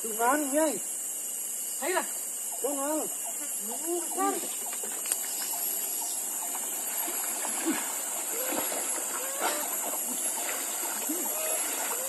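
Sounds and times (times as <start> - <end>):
steady high hiss: 0.0 - 12.0
water splashing: 4.4 - 12.0.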